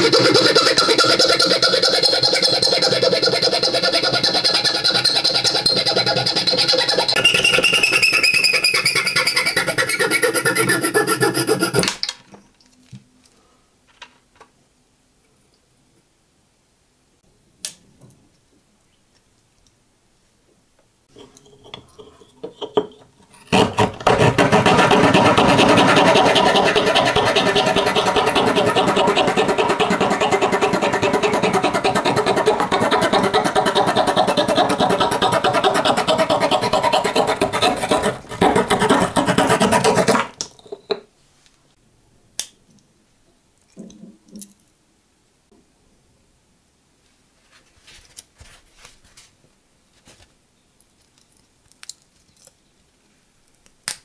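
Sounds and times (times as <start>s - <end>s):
metal file scraping steel pin: 0.0s - 11.8s, 21.1s - 40.2s
small saw rasping through wood: 0.0s - 11.9s, 21.2s - 40.3s.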